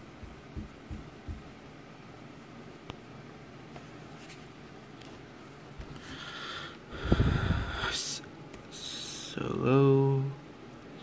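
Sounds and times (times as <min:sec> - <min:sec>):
person breathing loudly: 0:06.0 - 0:08.0.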